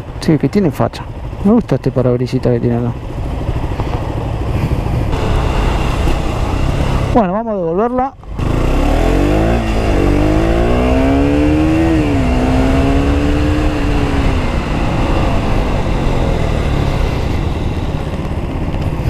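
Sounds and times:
motorcycle engine accelerating: 2.9s - 19.0s
wind rushing on microphone: 3.2s - 7.2s.

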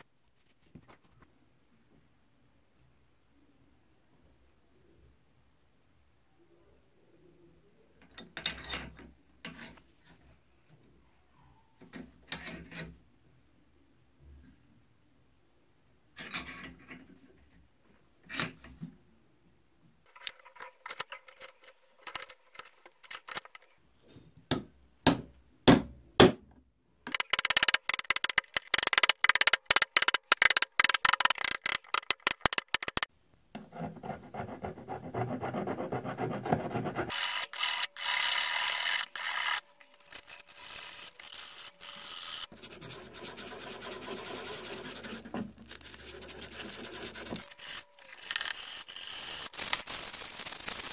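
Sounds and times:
sanding and scraping: 39.2s - 50.9s.

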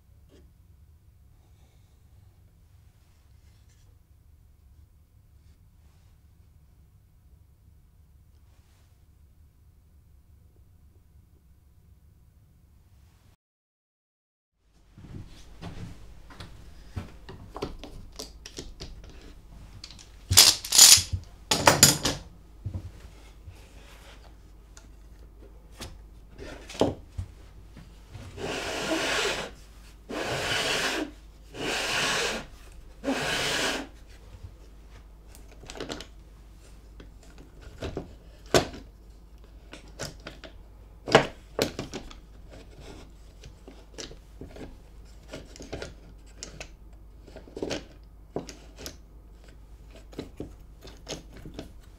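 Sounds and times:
wooden carriage sliding scrape: 28.3s - 33.9s.

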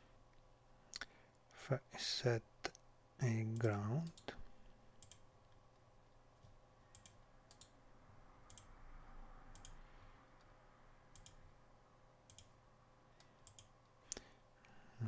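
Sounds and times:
faint steady hum: 0.0s - 15.0s
computer mouse clicks: 5.0s - 5.6s, 6.4s - 7.8s, 8.5s - 8.8s, 9.5s - 9.8s, 11.1s - 11.4s, 12.3s - 12.6s, 13.2s - 14.2s.

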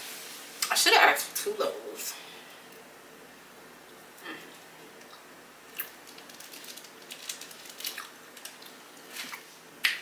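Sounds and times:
bread being pulled apart and chewed: 5.0s - 9.5s.

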